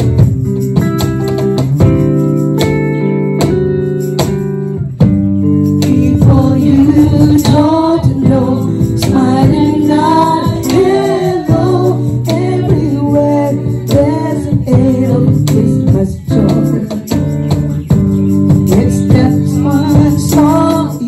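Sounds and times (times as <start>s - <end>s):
cajon beat: 0.0s - 21.0s
strummed guitar: 0.0s - 21.0s
group singing a carol: 5.9s - 17.0s.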